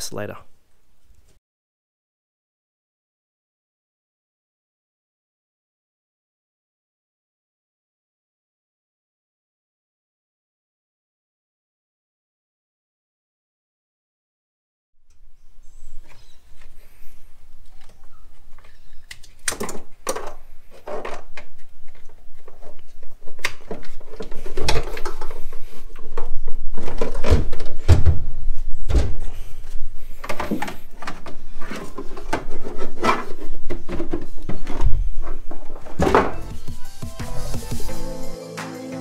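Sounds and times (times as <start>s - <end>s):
heavy thumps: 27.2s - 31.1s, 33.8s - 38.3s.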